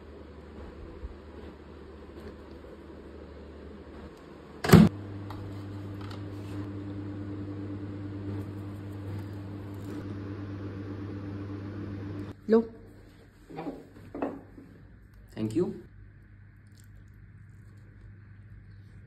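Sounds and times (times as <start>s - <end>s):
steady electrical hum: 0.0s - 19.0s.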